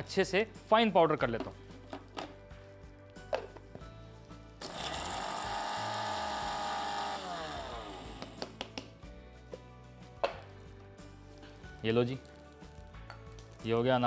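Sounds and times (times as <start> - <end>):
mixer grinder running: 4.6 - 8.5.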